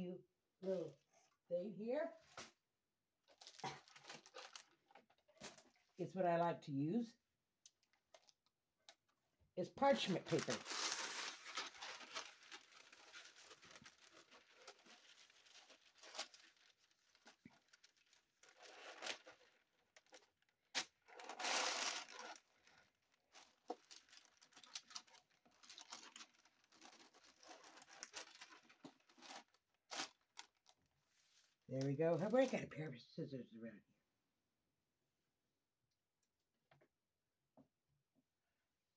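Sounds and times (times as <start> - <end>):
paper crinkling and rustling: 3.3 - 5.9, 9.9 - 30.8.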